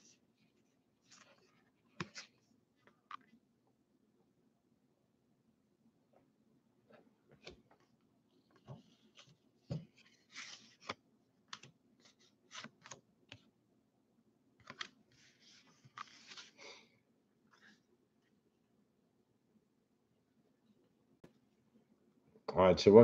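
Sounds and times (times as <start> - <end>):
card stock rustling: 14.6 - 16.8.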